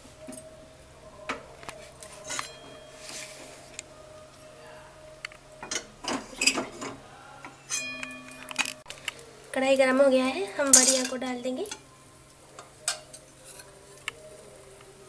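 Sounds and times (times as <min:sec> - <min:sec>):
metal spatula clinking on pan: 0:07.7 - 0:08.7, 0:10.7 - 0:11.8.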